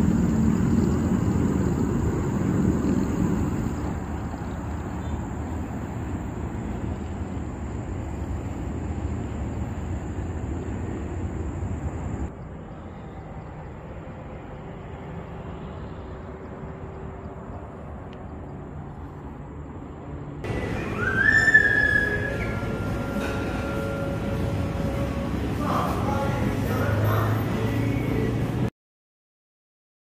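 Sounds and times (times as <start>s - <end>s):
distant road traffic hum: 0.0s - 28.7s
thin high steady tone: 20.4s - 28.3s
short rising tone: 20.5s - 25.5s.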